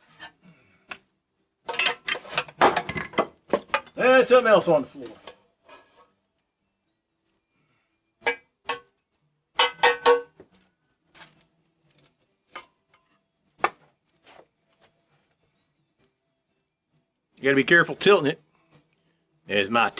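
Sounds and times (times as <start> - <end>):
pans and utensils clanking: 1.6 - 4.0, 9.6 - 10.5.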